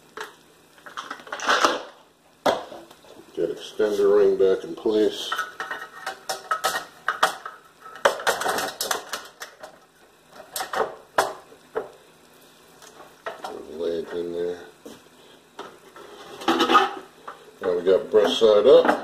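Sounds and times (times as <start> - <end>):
plastic and metal parts clattering: 0.8 - 1.9, 5.3 - 9.8.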